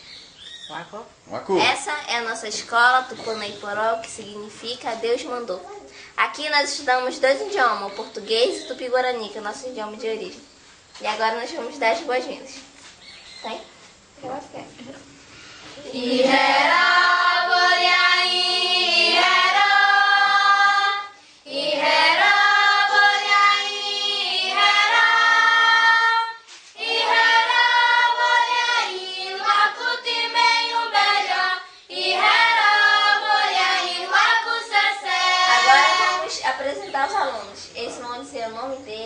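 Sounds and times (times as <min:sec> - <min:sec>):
children singing together: 0:15.7 - 0:36.4.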